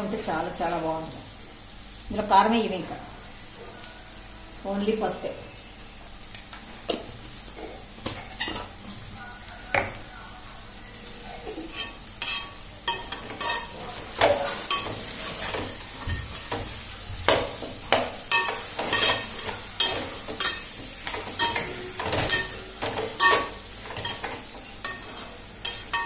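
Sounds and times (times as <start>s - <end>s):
frying sizzle: 0.0s - 26.0s
metal spatula scraping a pot: 8.2s - 8.8s, 11.5s - 16.8s, 18.3s - 26.0s.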